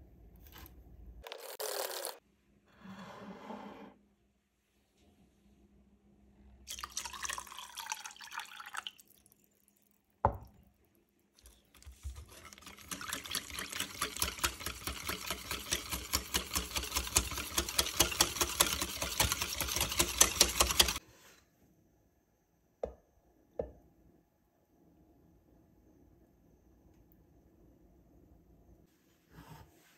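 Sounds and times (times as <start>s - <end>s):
milk pouring into a metal saucepan: 6.7s - 10.1s, 11.4s - 21.0s
wire whisk beating in a metal pan: 11.9s - 21.0s.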